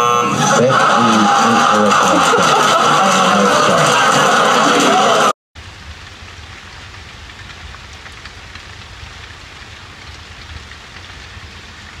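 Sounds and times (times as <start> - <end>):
rain drop ticks: 5.6 - 12.0
steady rain hiss: 5.6 - 12.0.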